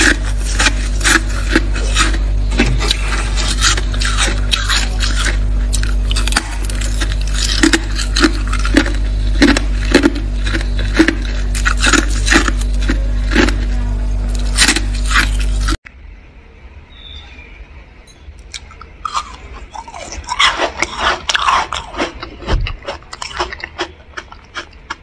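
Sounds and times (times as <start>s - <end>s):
frost being scraped: 0.0s - 15.8s
steady low hum: 0.0s - 25.0s.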